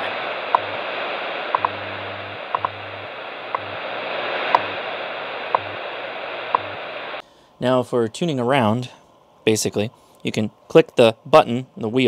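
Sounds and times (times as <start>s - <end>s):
low hum switching on and off: 0.0s - 7.2s
radio static hiss: 0.0s - 12.0s.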